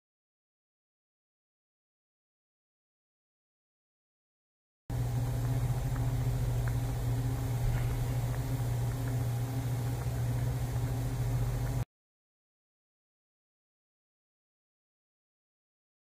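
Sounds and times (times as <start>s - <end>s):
pot boiling: 4.9s - 11.8s.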